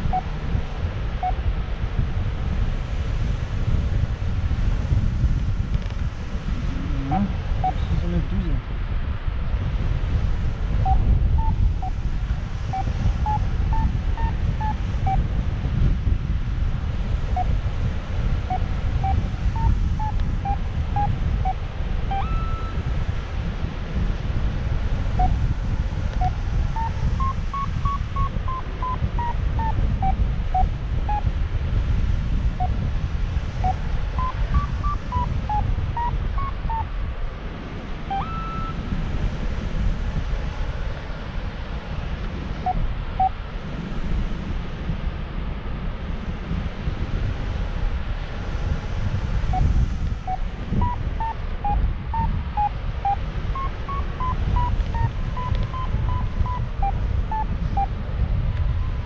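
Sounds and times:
variometer beeps: 0.0s - 0.4s, 1.2s - 1.5s, 6.6s - 8.4s, 10.8s - 12.1s, 12.7s - 15.3s, 17.3s - 17.7s, 18.3s - 23.0s, 25.1s - 31.3s, 32.5s - 32.8s, 33.5s - 37.0s, 38.1s - 39.0s, 42.6s - 43.4s, 49.5s - 59.0s
wind rushing over microphone: 0.0s - 59.0s
long high tone: 38.1s - 38.8s.

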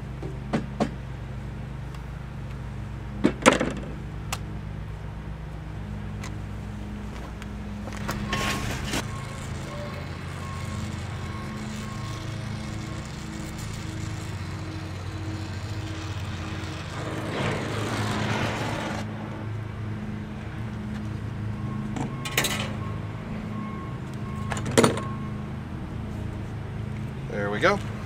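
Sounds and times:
low hum: 1.0s - 27.3s
welding arc crackling: 7.8s - 19.1s.

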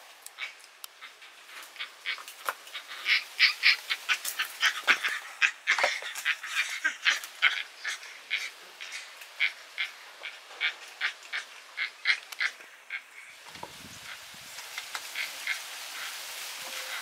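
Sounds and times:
monkey high-pitched cries: 2.8s - 13.1s.

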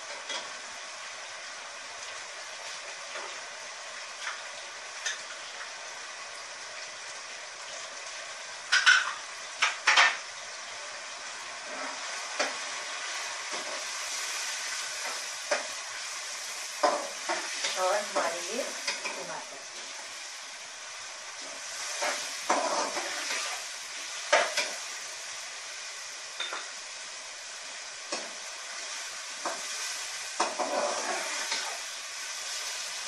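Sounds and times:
meat sizzling in oil: 0.0s - 33.0s
metal spoon scraping a pan: 21.8s - 23.6s, 30.4s - 31.8s.

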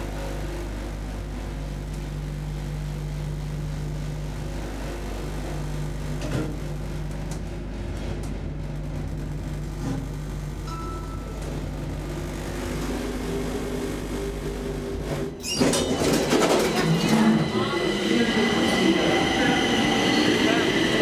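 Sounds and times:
elevator hydraulic hum: 9.6s - 21.0s.

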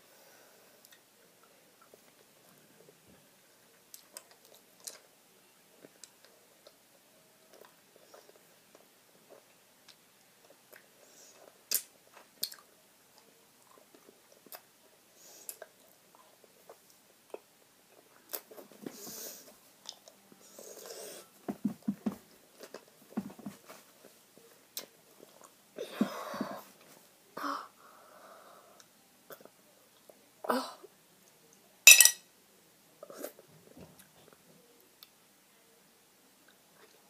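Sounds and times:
wheezing hissing breaths: 18.8s - 19.6s, 20.4s - 21.4s, 27.4s - 28.8s.

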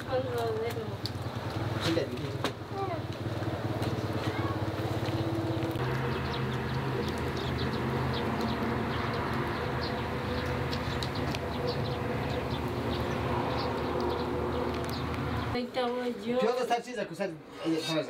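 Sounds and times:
small birds chirping: 0.1s - 16.3s.

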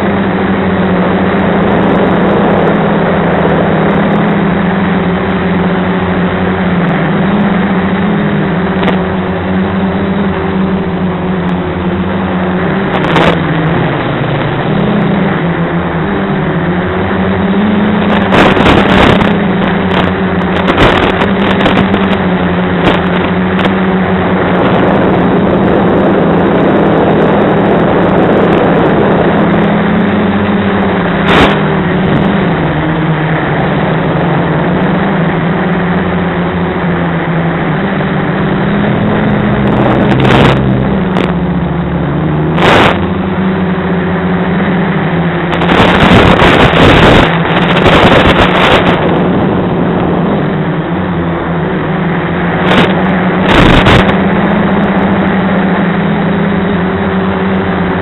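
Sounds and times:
drone motors humming: 0.0s - 58.0s
sharp clicks and crackles: 8.7s - 9.0s.

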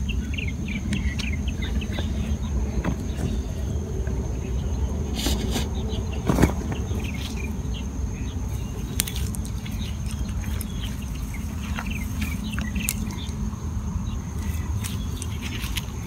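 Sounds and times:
high insect whine: 0.0s - 16.0s
small birds chirping: 0.0s - 16.0s.

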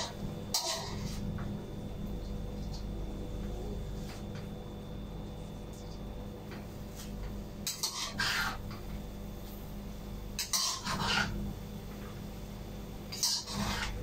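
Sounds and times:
spatula scraping in a wok: 0.0s - 1.4s, 6.9s - 8.8s, 10.4s - 11.4s, 13.1s - 14.0s
steady low hum: 0.0s - 14.0s.

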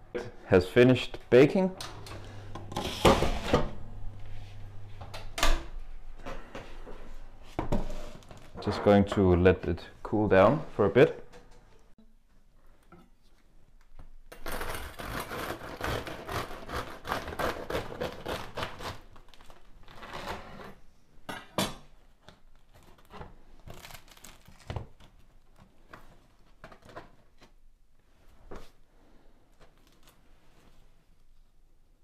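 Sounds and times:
bread knife sawing through crust: 14.6s - 19.1s
bread crackling: 14.6s - 20.2s, 22.1s - 27.5s.

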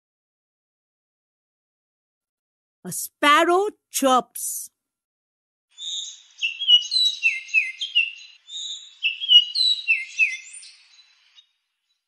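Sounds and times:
sparrow chirping: 5.7s - 12.0s.

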